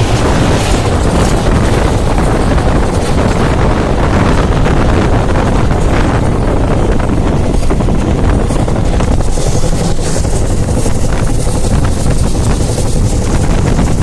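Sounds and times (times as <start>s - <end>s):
train rumble: 0.0s - 14.0s
wind buffeting microphone: 0.0s - 14.0s.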